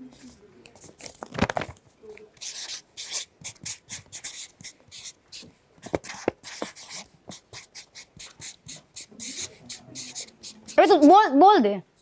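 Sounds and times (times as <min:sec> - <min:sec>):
marker scratching on paper: 0:02.4 - 0:11.2.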